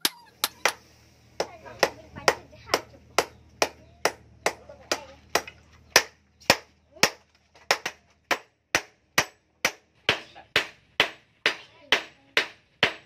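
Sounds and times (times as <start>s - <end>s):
hammer striking steel on anvil: 7.8s - 13.0s.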